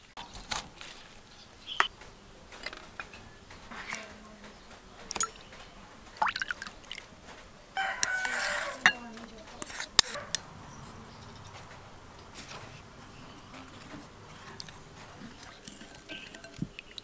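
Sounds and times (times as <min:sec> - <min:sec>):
small splashes and drips: 0:05.0 - 0:07.1, 0:11.2 - 0:17.0
liquid pouring into glass bowl: 0:06.2 - 0:07.0.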